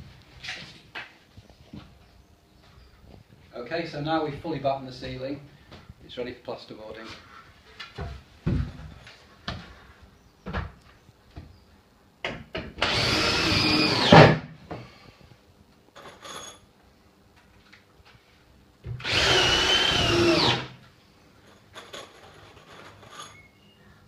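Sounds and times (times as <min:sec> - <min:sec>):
power drill whining: 0:12.8 - 0:14.3, 0:19.0 - 0:20.8.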